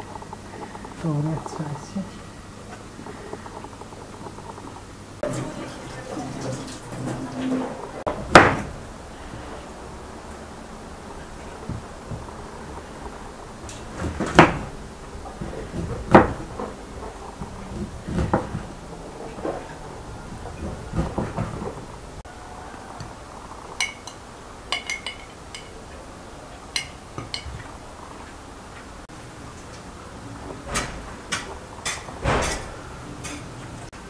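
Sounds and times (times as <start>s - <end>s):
metal spoon clinking on glass: 23.8s - 25.8s, 26.8s - 27.5s.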